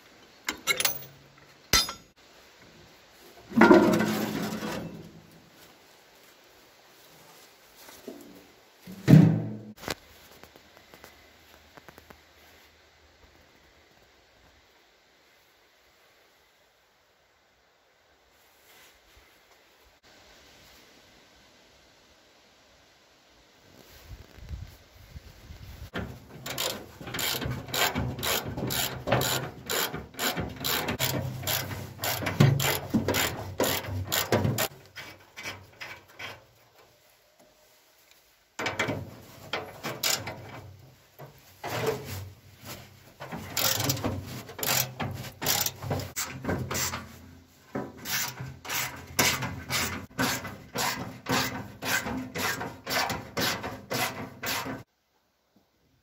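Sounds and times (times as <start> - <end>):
metal-on-metal scraping: 0.5 - 2.2, 3.5 - 5.2, 26.0 - 37.0, 38.6 - 54.9
ratchet wrench clicking: 26.4 - 34.7, 43.6 - 44.0, 44.6 - 46.3.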